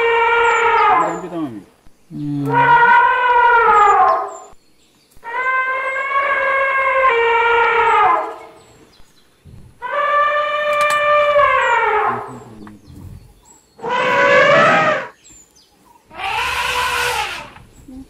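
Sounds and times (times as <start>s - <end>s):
elephants trumpeting: 0.0s - 1.3s, 2.4s - 4.4s, 5.2s - 8.6s, 9.8s - 15.2s, 16.1s - 17.7s.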